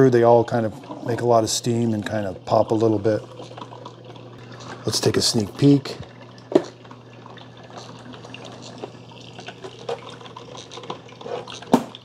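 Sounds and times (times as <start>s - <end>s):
coffee maker water gurgling: 0.0s - 12.0s.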